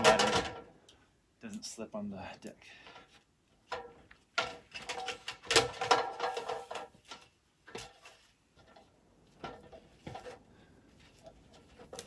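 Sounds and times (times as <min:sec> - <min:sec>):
clanks on aluminium ladder: 0:00.0 - 0:00.7, 0:03.7 - 0:10.4.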